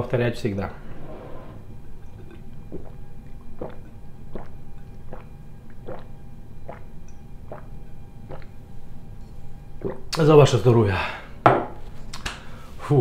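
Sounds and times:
man gulping a drink: 1.8s - 8.6s, 9.8s - 10.2s.

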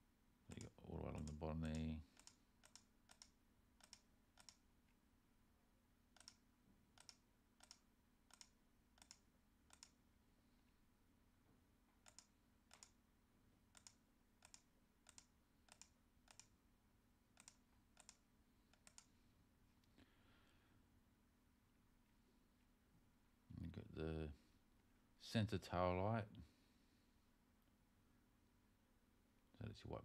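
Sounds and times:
faint steady hum: 0.0s - 30.0s
faint computer mouse clicks: 0.5s - 4.6s, 6.1s - 6.4s, 7.0s - 10.0s, 12.0s - 13.0s, 13.7s - 16.5s, 17.4s - 19.1s.

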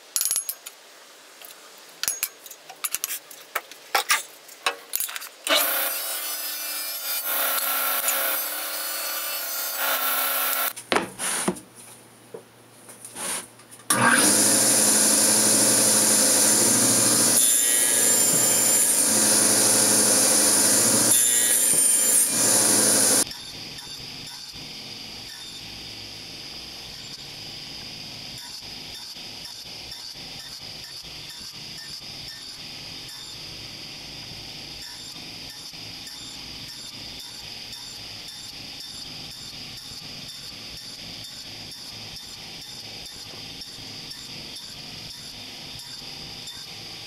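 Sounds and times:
table saw cutting wood: 5.5s - 10.7s, 13.9s - 23.3s.

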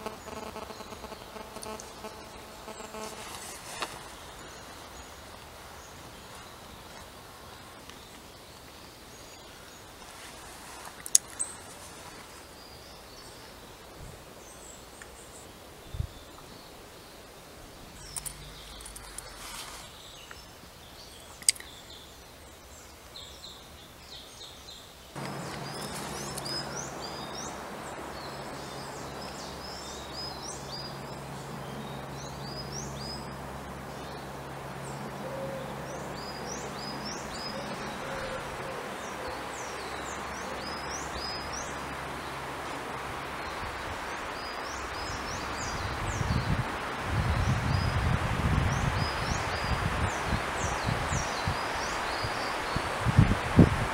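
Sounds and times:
low steady hum: 0.0s - 10.0s, 25.2s - 44.2s
songbirds calling: 0.0s - 53.9s.

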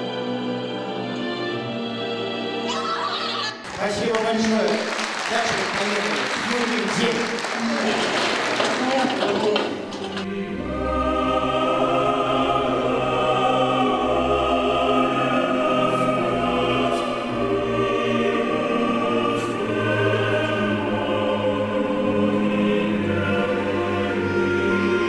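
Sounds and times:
choir singing held chords: 9.6s - 25.0s.

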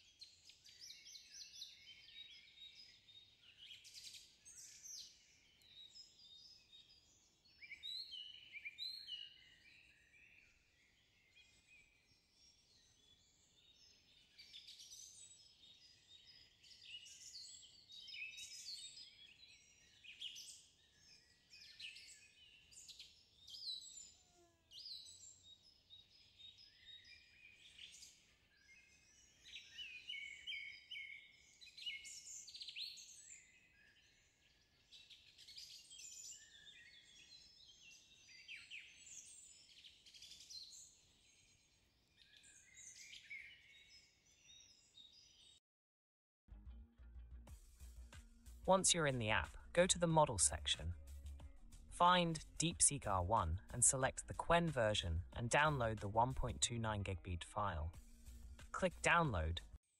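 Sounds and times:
small birds chirping: 0.0s - 45.6s.

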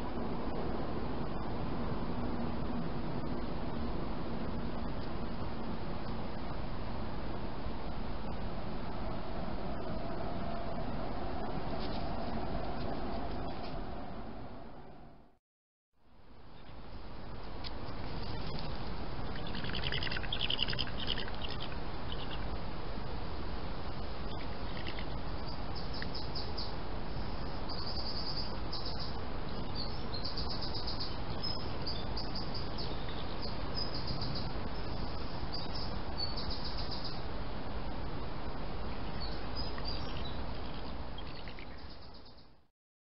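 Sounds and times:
steady hiss: 16.1s - 42.4s
small birds chirping and trilling: 17.8s - 22.6s, 24.2s - 37.3s, 38.9s - 42.6s.

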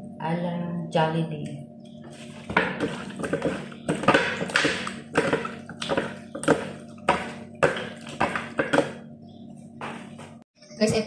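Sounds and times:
steady low hum: 0.0s - 11.0s
wet slaps and squelches: 2.8s - 8.8s.

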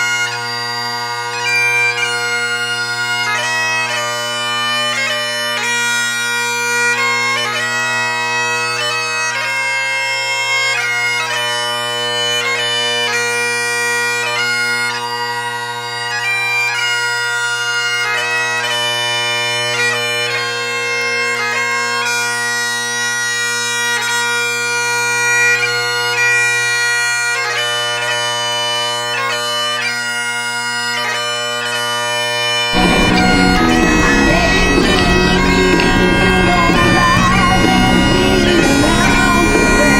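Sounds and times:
instrumental melody over low drones: 32.8s - 39.9s
loud dense noisy sound: 32.8s - 39.9s.

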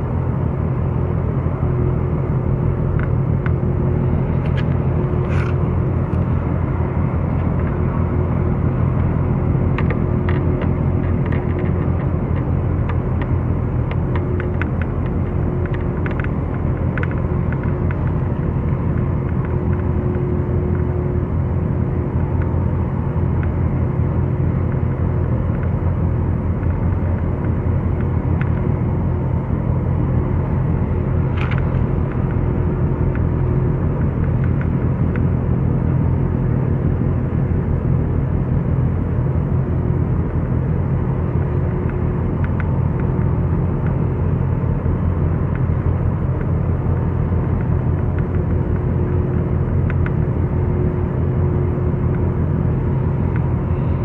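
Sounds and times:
boat engine running: 0.0s - 54.0s
faint steady hum: 0.0s - 54.0s.

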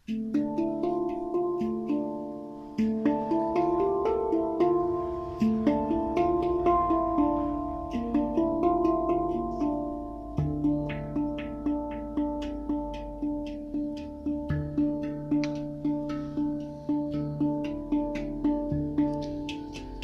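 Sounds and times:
plucked string instrument: 0.0s - 20.0s.

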